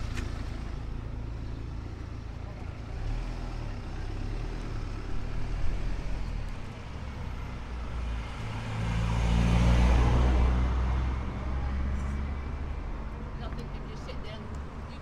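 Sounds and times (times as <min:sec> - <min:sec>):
low street rumble: 0:00.0 - 0:15.0
car driving past: 0:07.2 - 0:12.7.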